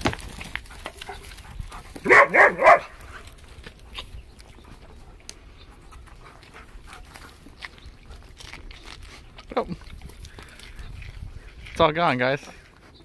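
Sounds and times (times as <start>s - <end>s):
dog barking: 2.0s - 3.0s.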